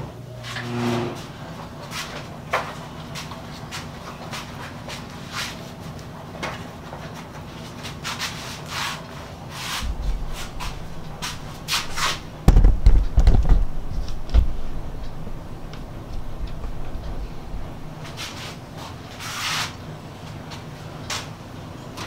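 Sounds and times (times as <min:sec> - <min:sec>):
heavy thumps: 0:09.8 - 0:19.2.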